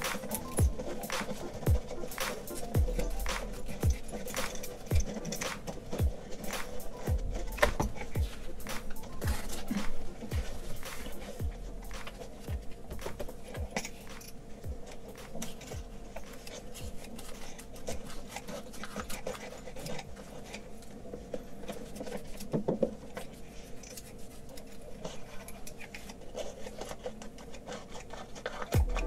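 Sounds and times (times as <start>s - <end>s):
blade clicks: 0.0s - 12.3s
tin snips cutting sandpaper: 0.0s - 20.7s, 23.2s - 29.0s
paper rustling: 0.0s - 29.0s.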